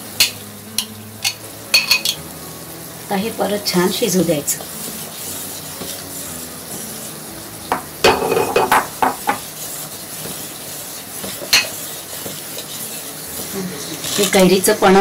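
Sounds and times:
spoon knocking against pot: 0:00.2 - 0:02.2, 0:07.7 - 0:09.5
syrup bubbling in a pot: 0:03.7 - 0:14.7
metal spoon stirring: 0:04.8 - 0:07.2, 0:08.1 - 0:14.6.

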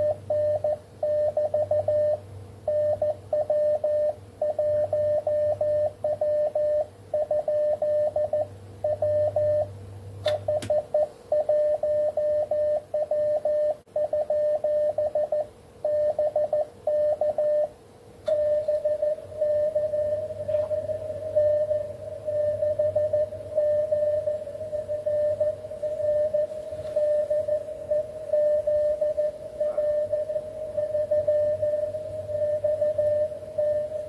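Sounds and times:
morse code tones: 0:00.0 - 0:09.7, 0:18.3 - 0:34.0
faint steady lower tone: 0:00.0 - 0:09.8, 0:10.4 - 0:34.0
click: 0:18.2 - 0:18.4.

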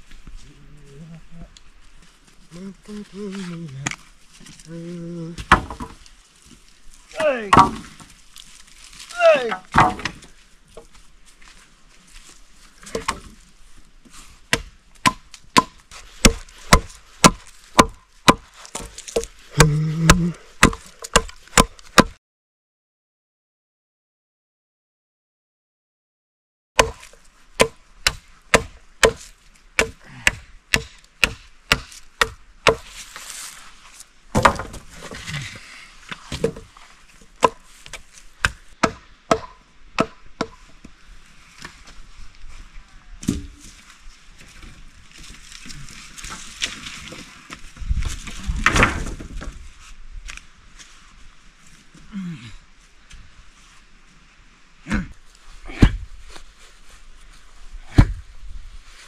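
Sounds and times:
wood clattering: 0:05.4 - 0:06.0, 0:07.2 - 0:08.2, 0:09.2 - 0:10.9, 0:34.3 - 0:40.6
blade chopping wood: 0:07.2 - 0:08.1, 0:09.2 - 0:10.3, 0:14.5 - 0:22.2, 0:26.8 - 0:33.0, 0:34.3 - 0:35.2, 0:36.2 - 0:36.7, 0:37.4 - 0:40.6, 0:57.9 - 0:58.2.

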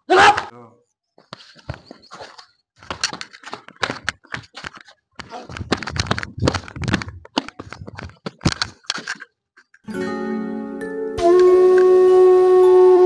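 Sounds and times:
sandals scuffing on concrete and dirt: 0:01.2 - 0:09.0.

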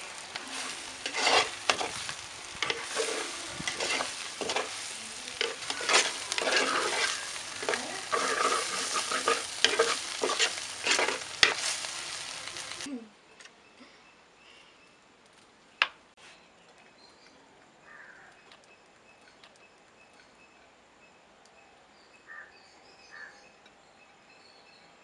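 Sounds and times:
spoon scraping: 0:00.0 - 0:12.8
leaves sizzling in a pot: 0:00.0 - 0:13.0.

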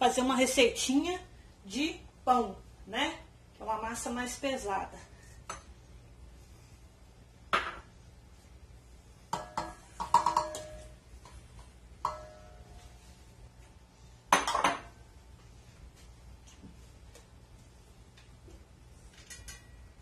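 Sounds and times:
metal clinks on steel bowl: 0:12.0 - 0:12.6.

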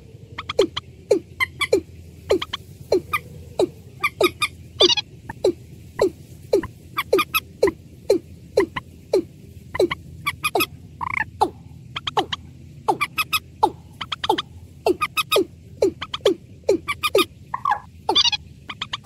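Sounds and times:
higher bird call: 0:00.4 - 0:19.0.

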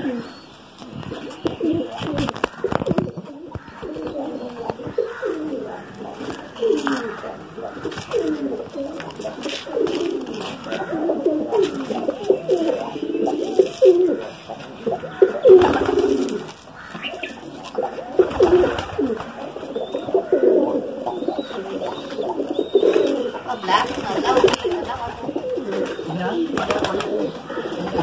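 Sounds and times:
pigeons cooing: 0:00.0 - 0:28.0.

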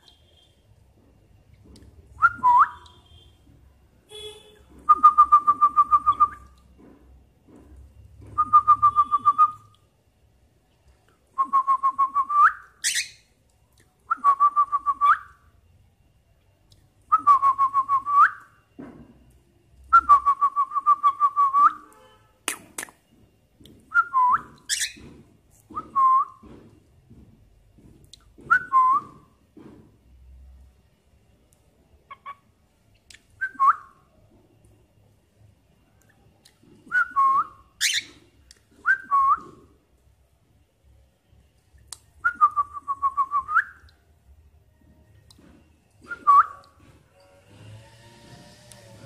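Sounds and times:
cockatiel whistling: 0:12.1 - 0:13.2, 0:36.9 - 0:38.2.

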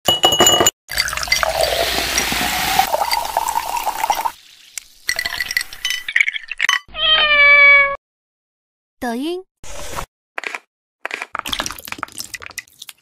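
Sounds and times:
ice cubes clinking against glass: 0:00.1 - 0:04.4, 0:05.0 - 0:06.8
soda pouring and fizzing: 0:00.9 - 0:06.7, 0:11.5 - 0:13.0.

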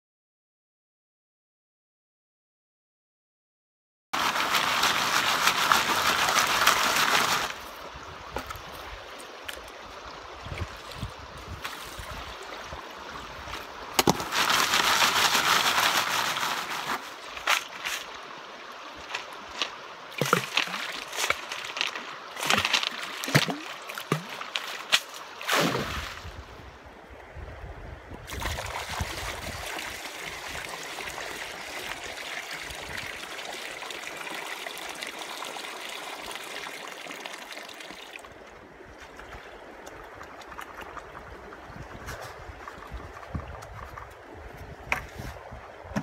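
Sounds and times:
water pouring from a bucket: 0:04.2 - 0:07.7, 0:14.0 - 0:18.1, 0:19.1 - 0:26.4, 0:28.3 - 0:38.3
water splashing in a creek: 0:04.2 - 0:46.0.

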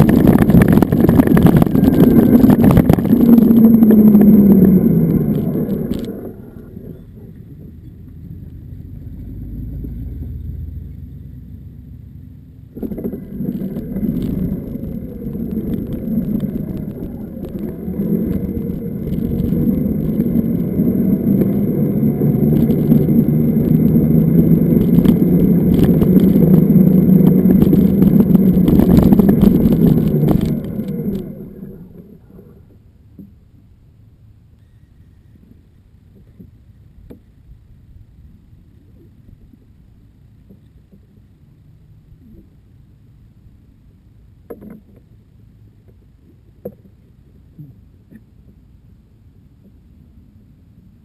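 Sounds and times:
electric motor whine: 0:00.0 - 0:07.2, 0:12.8 - 0:32.0
rushing noise: 0:00.0 - 0:07.3, 0:12.7 - 0:32.4
electric motorcycle low rumble: 0:00.0 - 0:51.0.

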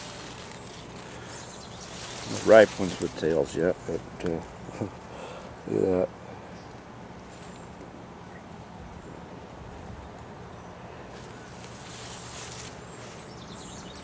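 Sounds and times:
foliage rustling: 0:00.0 - 0:04.1, 0:11.0 - 0:14.0
insect calling in high pulses: 0:00.0 - 0:14.0
low background hum: 0:00.0 - 0:14.0.

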